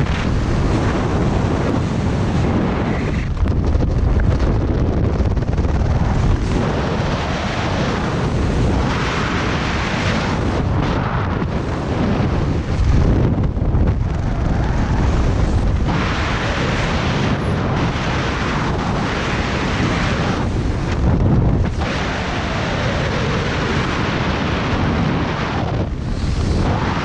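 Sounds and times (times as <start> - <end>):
wind noise on microphone: 0.0 - 27.0.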